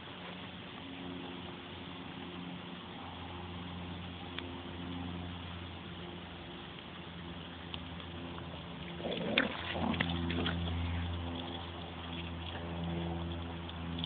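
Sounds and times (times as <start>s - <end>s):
steady low hum: 0.0s - 14.0s
puppies growling and yapping: 8.8s - 13.2s.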